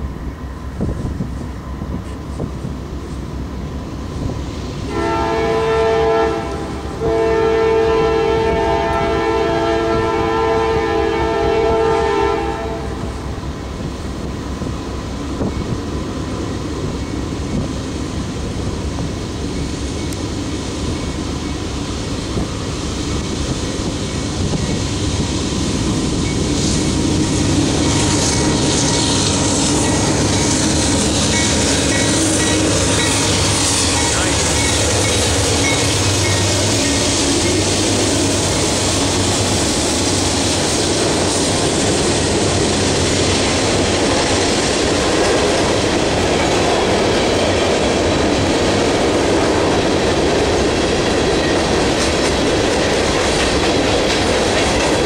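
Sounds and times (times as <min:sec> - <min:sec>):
diesel locomotive engine under load: 0:00.0 - 0:55.0
train wheel noise: 0:00.0 - 0:55.0
locomotive air horn blasts: 0:04.9 - 0:13.1.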